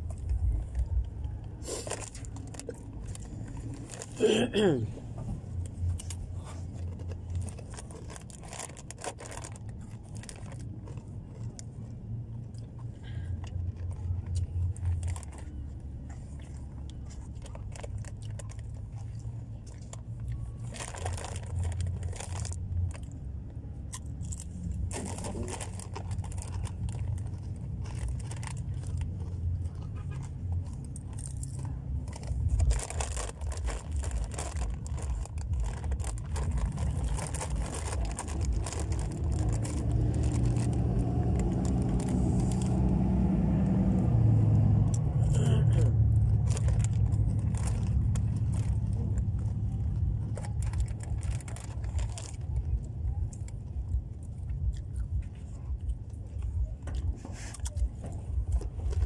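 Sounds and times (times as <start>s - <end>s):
chewing crunchy chips: 0.0s - 4.9s, 5.5s - 44.0s, 44.7s - 59.0s
steady low rumble: 0.0s - 59.0s
chip bag rustling: 6.8s - 10.9s, 20.0s - 23.2s, 24.2s - 29.6s, 30.5s - 43.2s, 46.2s - 52.8s.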